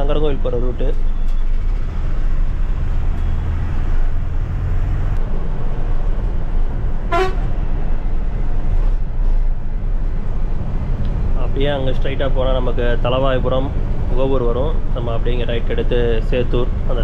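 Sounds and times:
diesel bus engine droning: 0.0s - 17.0s
road noise: 0.0s - 17.0s
bus horn toot: 7.1s - 7.5s.

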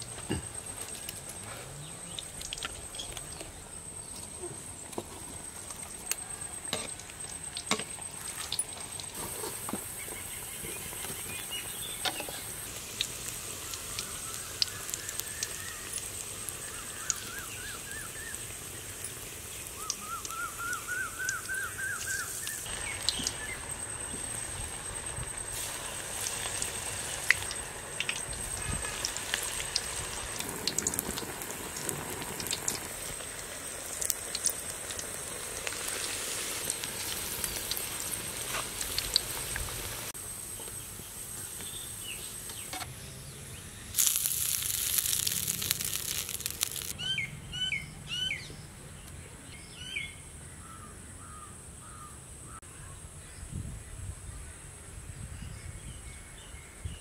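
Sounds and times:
deep-frying sizzle with crackles: 0.0s - 47.0s
bird chirps: 19.0s - 24.3s, 47.0s - 48.6s.

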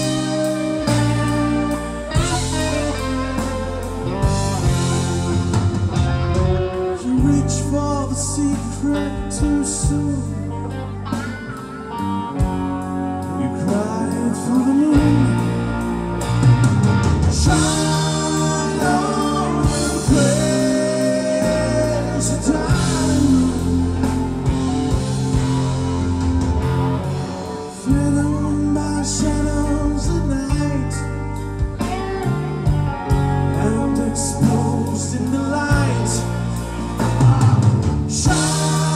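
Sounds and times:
live rock band playing: 0.0s - 38.9s
person singing: 6.2s - 12.1s, 12.8s - 16.0s, 17.3s - 25.6s, 27.1s - 38.9s.

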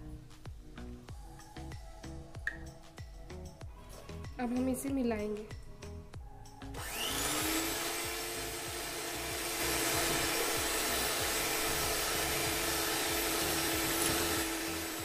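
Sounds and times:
electric hand mixer whipping cream: 6.8s - 15.0s.

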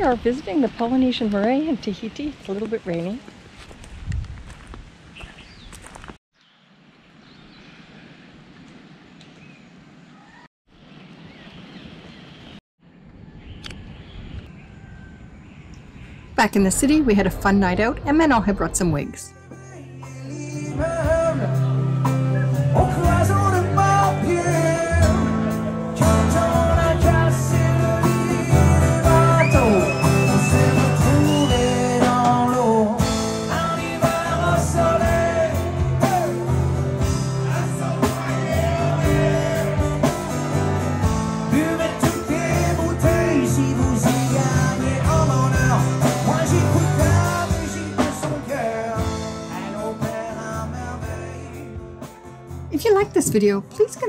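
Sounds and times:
band playing: 16.5s - 53.6s
man singing: 19.3s - 52.0s.

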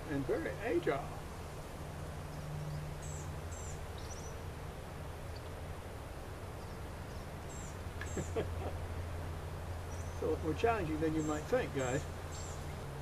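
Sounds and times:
bird chirps: 2.2s - 4.4s, 6.5s - 8.5s, 9.9s - 10.4s, 11.0s - 12.8s.

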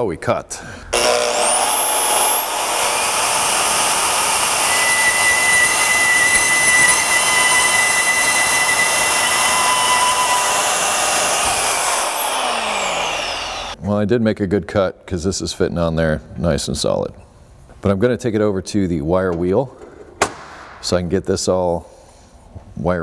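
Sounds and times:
band saw cutting metal pipe: 0.9s - 13.8s.

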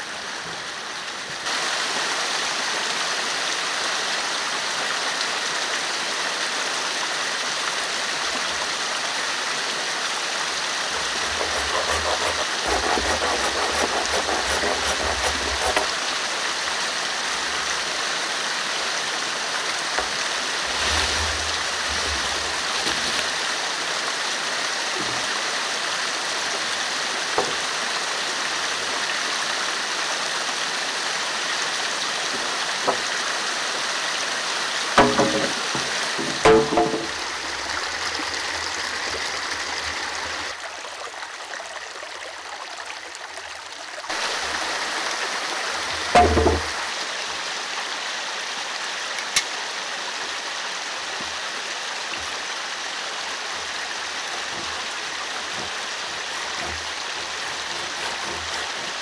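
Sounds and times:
forest stream rushing: 0.0s - 59.0s
hatchet strokes on wooden plank: 10.9s - 16.0s, 54.3s - 59.0s
wooden knocks: 10.9s - 16.0s, 35.0s - 37.4s, 46.1s - 46.8s.

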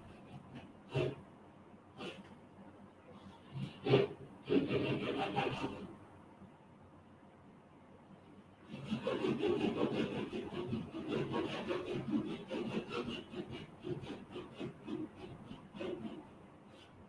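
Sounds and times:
scratchy rubbing on microphone: 8.7s - 17.0s.

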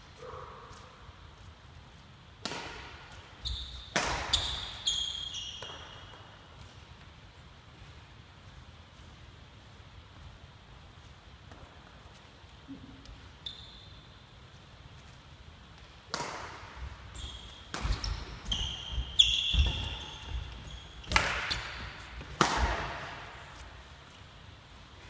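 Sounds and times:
rackets striking shuttlecock: 2.4s - 6.7s, 15.8s - 23.7s
shoes squeaking on wooden floor: 17.1s - 22.0s.

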